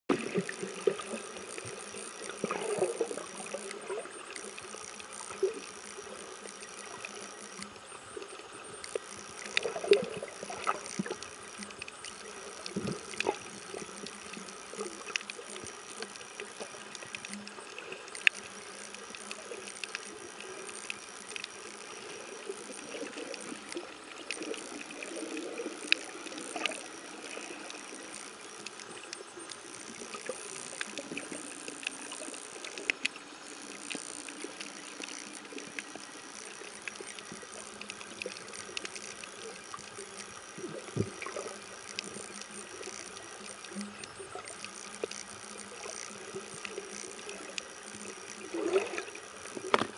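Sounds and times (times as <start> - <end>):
muffled underwater hiss: 0.1 - 49.9
sharp clicks: 0.1 - 49.9
bubbling gurgles: 48.4 - 49.3.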